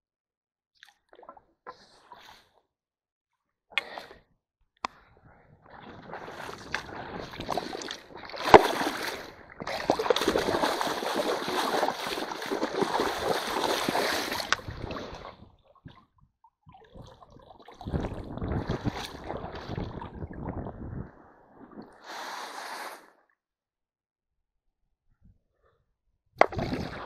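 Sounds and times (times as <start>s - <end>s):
stream water splashing: 6.0s - 15.4s, 26.4s - 27.0s.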